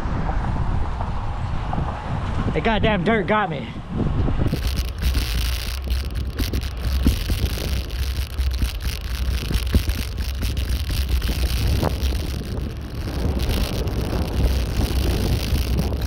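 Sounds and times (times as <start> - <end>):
wind buffeting microphone: 3.8 - 16.0
bicycle tyre noise: 4.5 - 16.0
bike knocks and rattles: 4.5 - 16.0.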